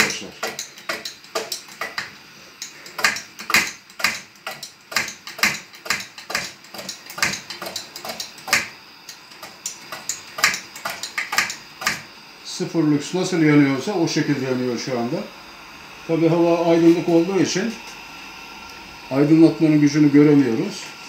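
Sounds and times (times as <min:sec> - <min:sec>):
lantern pump metallic clicks: 0:00.0 - 0:12.1
burner hiss: 0:00.0 - 0:21.0.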